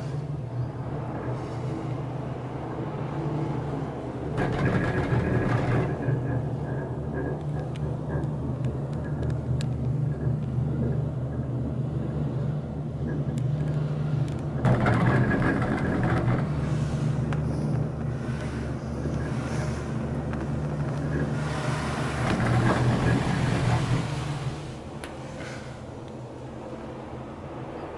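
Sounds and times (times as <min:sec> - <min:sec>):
gondola cabin hum: 0:00.0 - 0:27.9
rumble and rattle over sheaves: 0:14.6 - 0:24.8.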